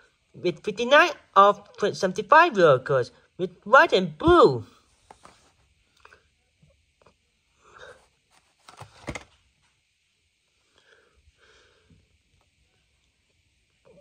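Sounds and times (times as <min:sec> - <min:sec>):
soft breaths: 0:07.5 - 0:08.6, 0:10.5 - 0:13.0
plastic packaging crinkling: 0:08.3 - 0:09.4.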